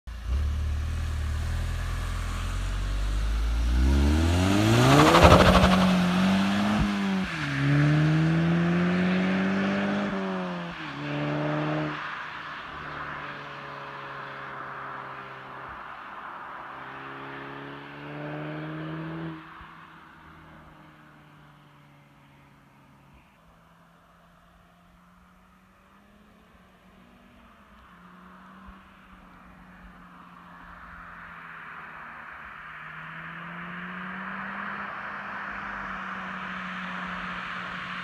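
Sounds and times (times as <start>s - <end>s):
car engine revving and upshifting: 0.3s - 14.9s, 16.7s - 19.5s.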